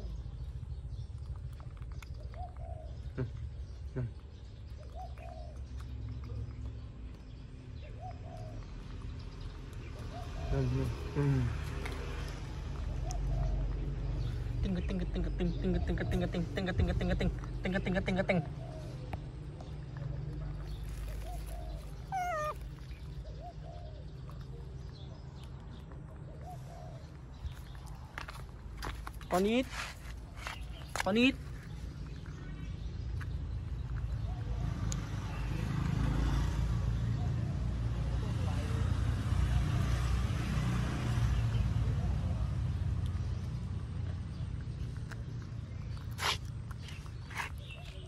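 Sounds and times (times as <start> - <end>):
dove cooing: 2.3 - 3.0, 4.8 - 5.6, 21.1 - 24.1, 26.4 - 27.1
baby monkey squeaking: 21.2 - 23.0.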